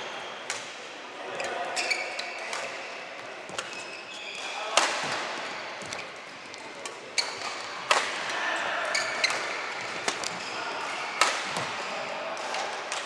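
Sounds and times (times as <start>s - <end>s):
shoes squeaking on court: 1.4s - 2.5s, 3.4s - 4.5s, 5.4s - 7.8s, 8.9s - 10.6s
racket hitting shuttlecock: 6.8s - 8.2s, 9.2s - 11.9s.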